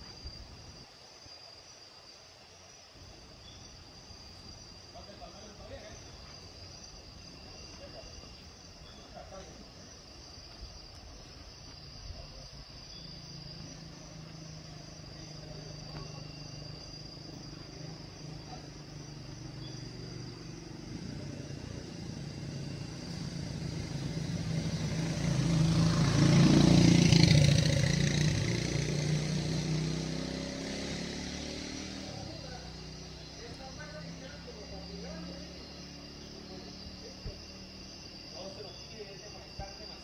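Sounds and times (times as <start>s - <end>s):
vehicle engine passing by: 11.6s - 40.0s.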